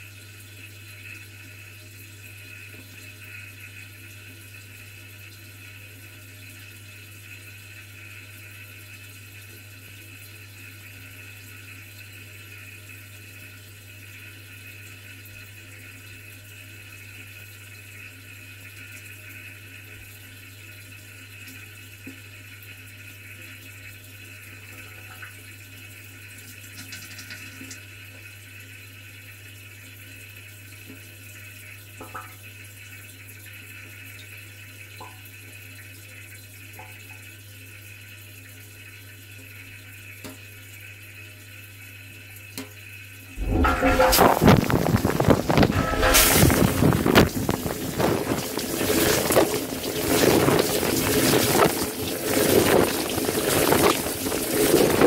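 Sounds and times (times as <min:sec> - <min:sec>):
low hum: 0:43.3 - 0:47.8
water hissing into dishwasher: 0:43.7 - 0:55.0.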